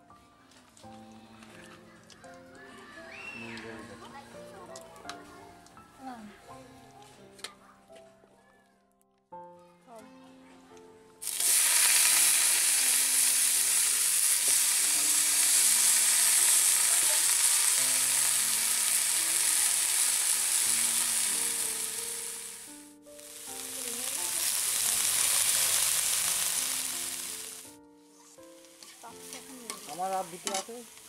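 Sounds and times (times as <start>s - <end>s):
cabbage sizzling in hot oil: 11.2s - 27.8s, 28.5s - 31.0s.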